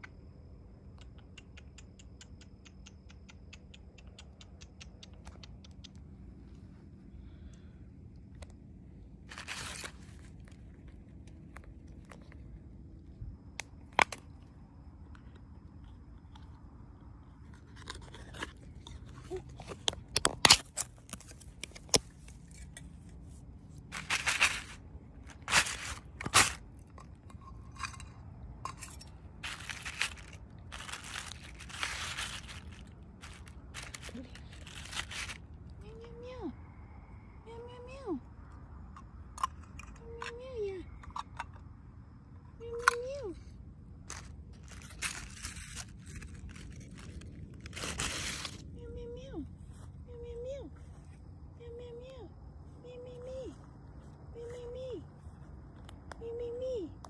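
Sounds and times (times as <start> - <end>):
plastic rustling: 9.3 - 10.2, 23.9 - 26.6, 29.4 - 35.4, 44.1 - 48.6
scraping: 23.9 - 35.4.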